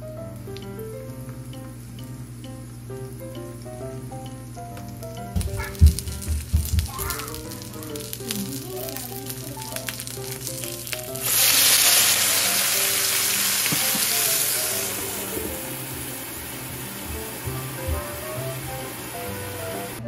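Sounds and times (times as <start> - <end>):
loud hissing sizzle: 0.0 - 20.0
dumplings frying with crackling: 0.3 - 20.0
water poured on hot plate: 7.0 - 16.4.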